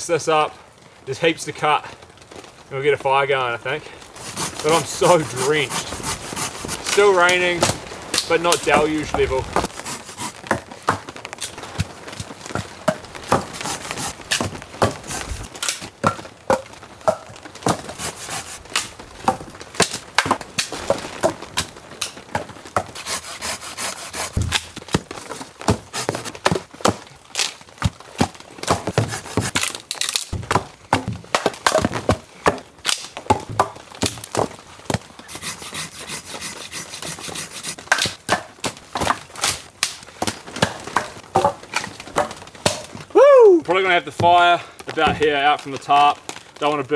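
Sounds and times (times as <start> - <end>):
rain hissing: 0.1 - 12.4, 13.0 - 15.9, 16.8 - 19.2, 22.8 - 26.4, 28.6 - 29.7, 34.6 - 38.0
sticks thunking onto pile: 24.3 - 35.1
wet branches snapping: 27.3 - 27.7, 29.4 - 30.3, 32.8 - 33.2.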